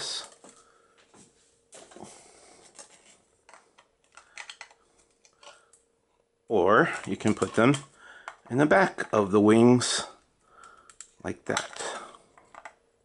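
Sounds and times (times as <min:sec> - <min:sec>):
plastic toy parts clicking: 0:03.8 - 0:05.6, 0:10.8 - 0:11.8.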